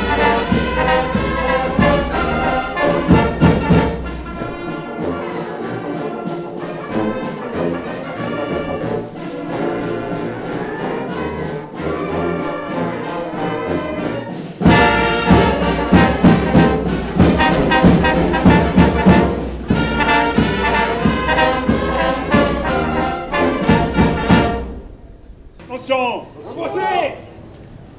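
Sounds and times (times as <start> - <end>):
drum strikes: 0.0 - 4.8, 14.6 - 25.9
brass band playing: 0.0 - 27.0.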